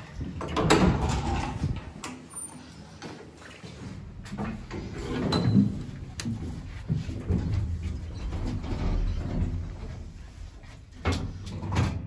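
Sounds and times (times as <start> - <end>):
metal door clunking shut: 0.4 - 1.7.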